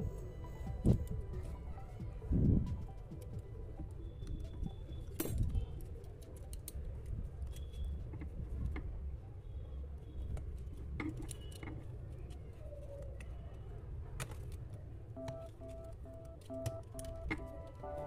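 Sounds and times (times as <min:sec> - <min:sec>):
plastic parts clicking and scraping: 0:10.3 - 0:14.8.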